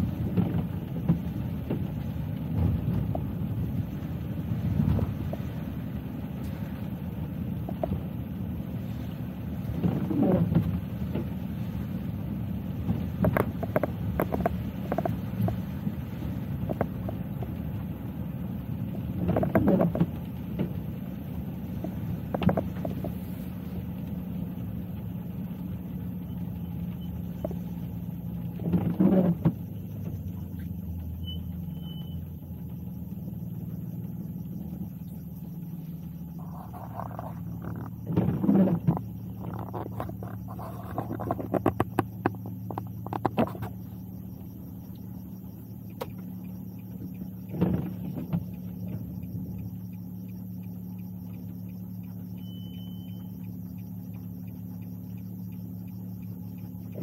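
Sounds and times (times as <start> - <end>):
car road and engine rumble: 0.0 - 57.0
knocks and rattles: 36.4 - 43.8.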